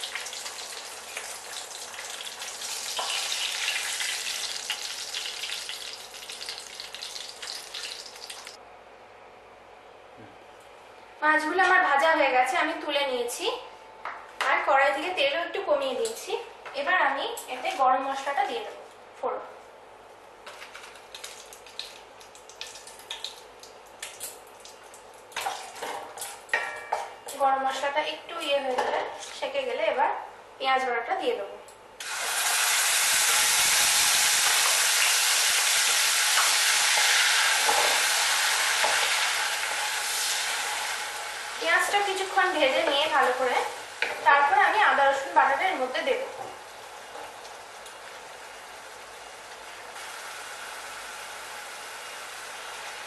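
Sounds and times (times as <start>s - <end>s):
fish sizzling in oil: 0.0s - 8.6s, 32.0s - 53.0s
sharp crackles and pops: 20.5s - 25.6s.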